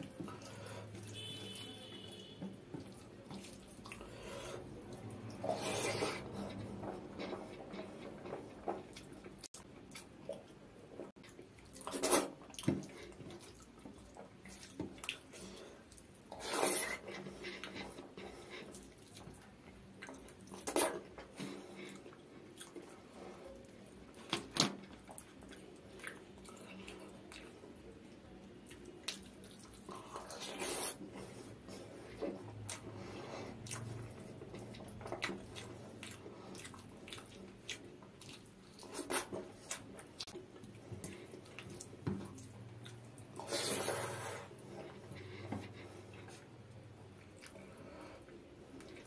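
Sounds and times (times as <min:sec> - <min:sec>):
wet chewing and lip smacks: 0:23.6 - 0:30.9, 0:32.2 - 0:43.6, 0:46.1 - 0:47.9.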